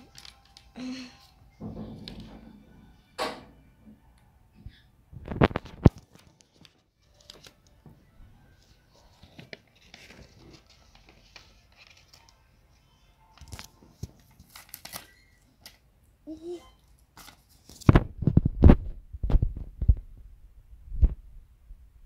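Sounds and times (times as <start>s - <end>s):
paper rustling and crinkling: 0.0s - 1.1s, 5.2s - 12.4s, 13.3s - 15.8s, 16.8s - 19.9s.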